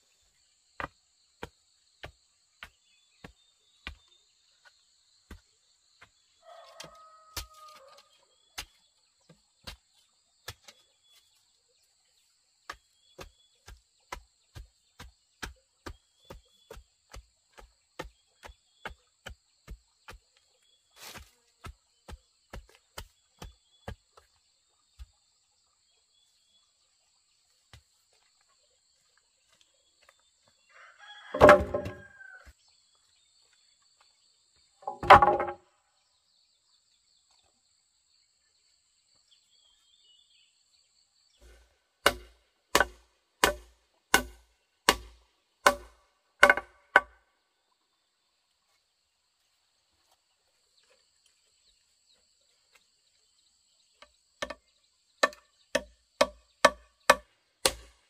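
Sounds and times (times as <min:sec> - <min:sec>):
sharp knocks: 0:31.4 - 0:32.0, 0:34.8 - 0:35.6, 0:42.0 - 0:45.1, 0:45.7 - 0:47.1.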